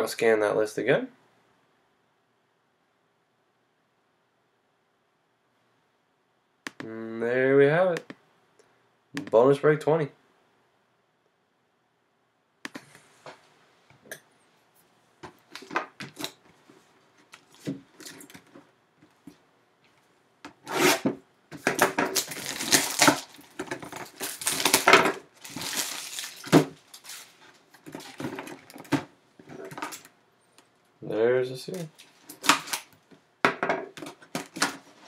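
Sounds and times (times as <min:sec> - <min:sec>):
knife tearing plastic wrap: 0:21.7 - 0:27.4, 0:32.0 - 0:32.9.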